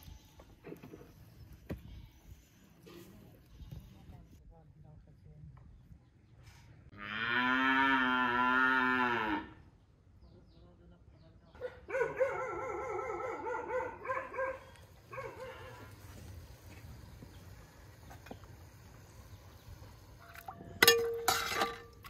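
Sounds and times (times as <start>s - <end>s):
cow mooing: 7.0s - 9.6s.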